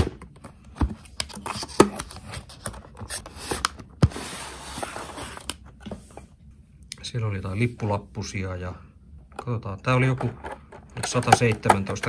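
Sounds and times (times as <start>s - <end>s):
plastic tray sliding out of cardboard: 3.2s - 6.2s.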